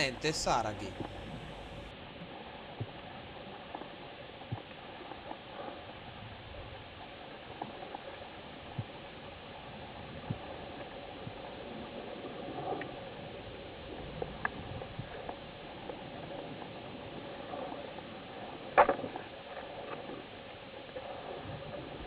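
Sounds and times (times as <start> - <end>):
faint steady hum: 0.0 - 3.0
underwater rush of water: 0.9 - 22.0.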